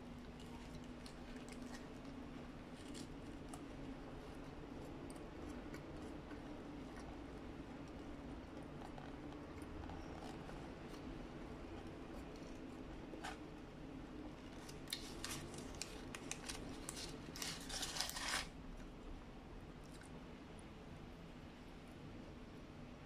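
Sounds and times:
faint chewing: 0:00.0 - 0:19.0, 0:19.8 - 0:20.2
paper wrapper crinkling: 0:00.2 - 0:07.0, 0:14.4 - 0:18.6.

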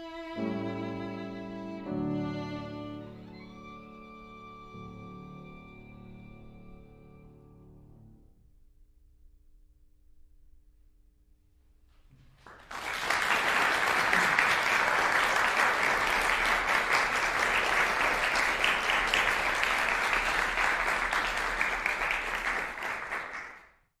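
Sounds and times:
audience applauding: 0:12.4 - 0:23.8.

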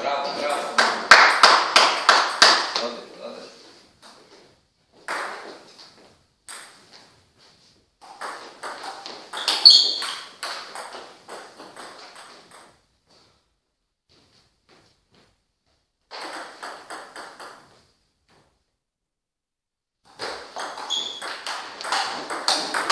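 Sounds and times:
table tennis ball hits: 0:05.0 - 0:05.7, 0:06.5 - 0:06.9, 0:08.0 - 0:12.8, 0:16.1 - 0:18.5, 0:20.1 - 0:22.9.

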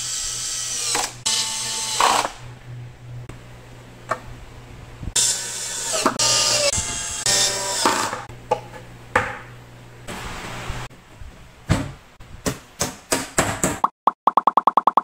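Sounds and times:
cordless drill whirring: 0:00.0 - 0:02.4, 0:05.2 - 0:08.2.

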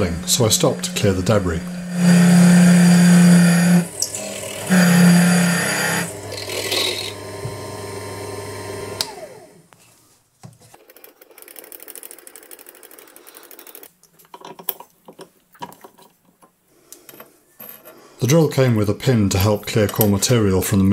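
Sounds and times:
spindle motor whining down: 0:00.0 - 0:09.6.

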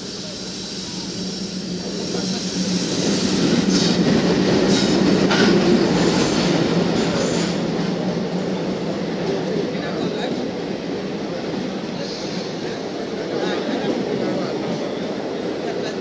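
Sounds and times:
diesel locomotive engine drone: 0:00.0 - 0:16.0
train wheels clattering over rail joints: 0:03.0 - 0:07.7.

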